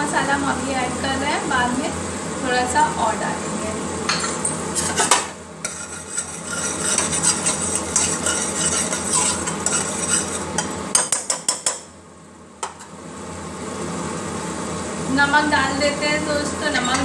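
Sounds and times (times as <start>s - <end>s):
spoon stirring and scraping: 4.2s - 11.8s
paste sizzling in oil: 4.7s - 11.2s.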